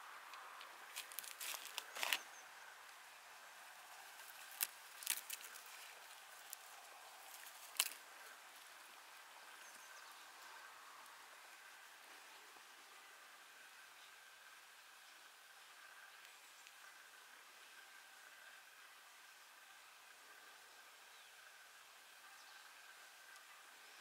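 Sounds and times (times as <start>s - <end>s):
faint steady hiss: 0.0s - 24.0s
deer crunching leaves: 0.8s - 2.2s, 3.8s - 8.8s.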